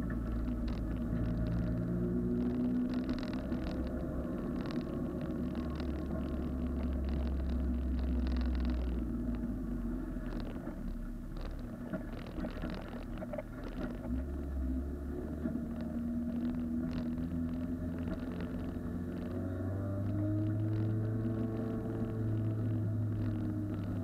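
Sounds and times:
clicks and rattles: 0.0s - 9.5s, 10.2s - 14.6s, 15.2s - 24.0s
car engine at low revs: 0.0s - 24.0s.

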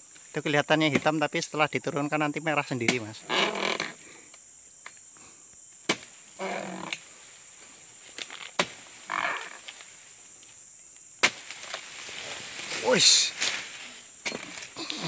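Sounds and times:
chisel chopping into palm fronds: 2.8s - 3.1s, 5.9s - 6.1s, 8.2s - 8.8s, 11.2s - 11.9s.

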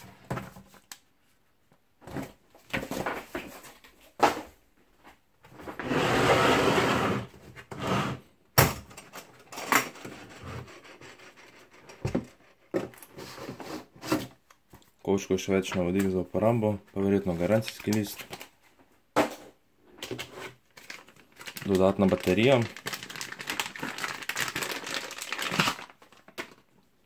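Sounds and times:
plastic case sliding scrape: 5.7s - 8.3s.

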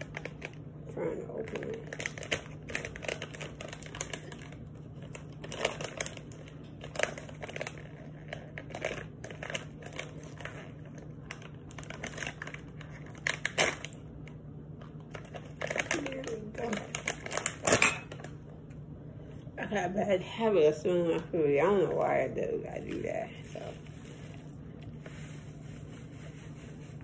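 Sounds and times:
plastic pouch crinkling: 1.4s - 14.1s, 14.9s - 18.3s.

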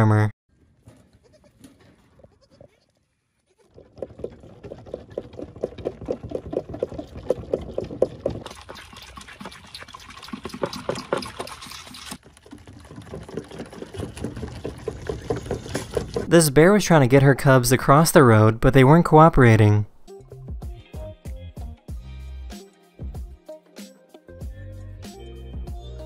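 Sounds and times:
goat kids sucking and slurping: 1.3s - 16.3s.

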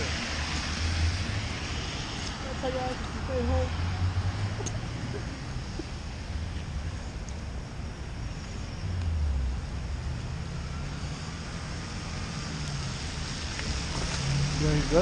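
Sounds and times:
car rolling by on wet road: 12.6s - 15.0s.

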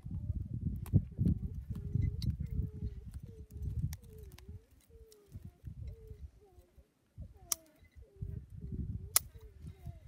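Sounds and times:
dove cooing: 1.4s - 10.0s.

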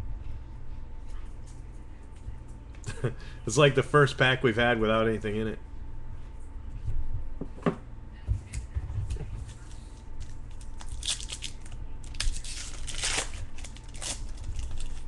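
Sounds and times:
wrapper tearing and crinkling: 10.2s - 15.0s.

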